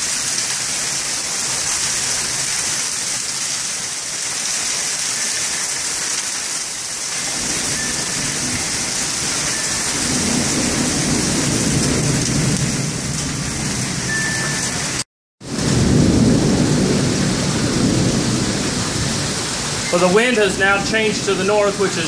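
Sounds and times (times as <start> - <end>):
heavy rain pouring: 0.0 - 22.0
low thunder rumble: 7.3 - 14.1, 15.5 - 22.0.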